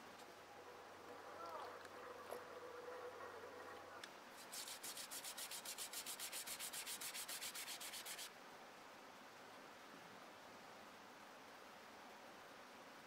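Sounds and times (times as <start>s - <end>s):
brush scrubbing blade in water: 4.4s - 8.3s.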